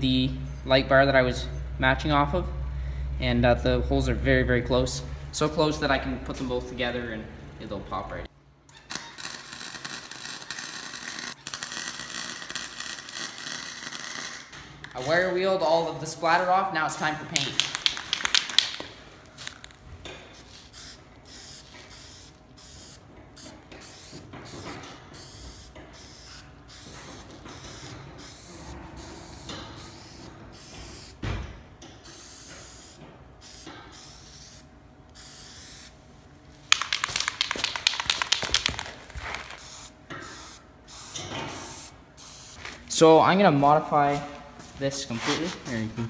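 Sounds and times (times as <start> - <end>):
spray-paint can hissing: 9.2 - 14.4, 17.4 - 18.8, 20.4 - 31.2, 32.0 - 34.6, 35.2 - 35.9, 36.7 - 42.6.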